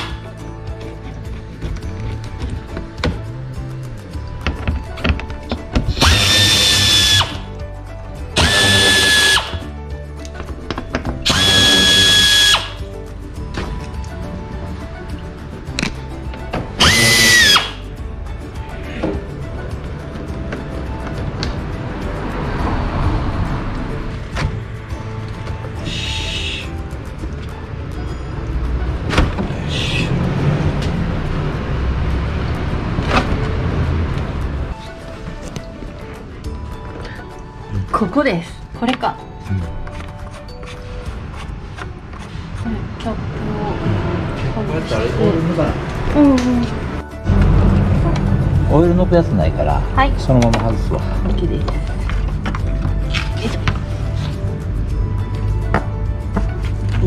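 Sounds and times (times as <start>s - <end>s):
background music: 0.0s - 57.0s
air tool whining: 5.9s - 7.5s, 8.4s - 9.6s, 11.2s - 12.8s, 16.8s - 17.8s.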